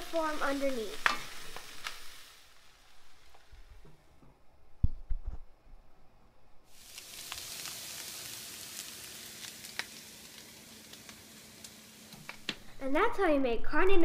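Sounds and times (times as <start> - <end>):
food sizzling in hot oil: 0.0 - 3.8, 6.7 - 13.0.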